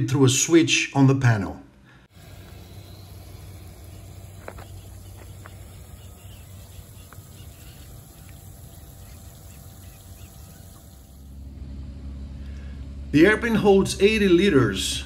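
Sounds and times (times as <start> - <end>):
faint outdoor ambience: 0.0 - 15.0
steady low hum: 1.7 - 15.0
water trickling into puddle: 2.2 - 11.3.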